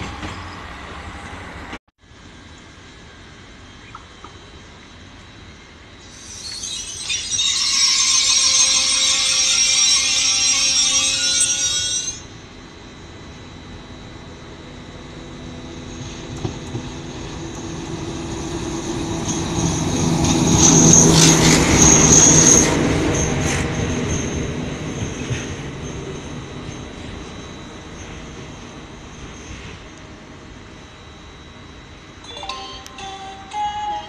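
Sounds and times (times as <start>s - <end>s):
metallic rail squeal and hiss: 6.0s - 12.4s, 16.9s - 30.0s
diesel locomotive engine rumble: 11.6s - 34.0s.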